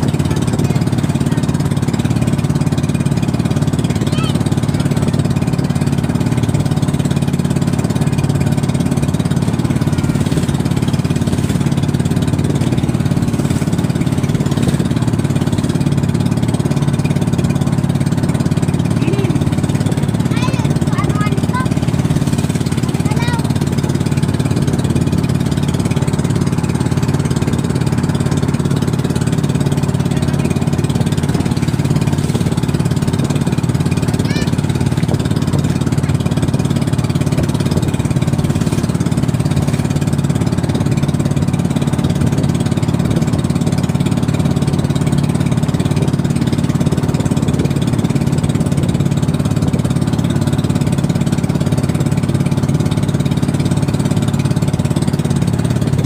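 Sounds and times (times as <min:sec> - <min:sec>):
small boat engine running: 0:00.0 - 0:56.0.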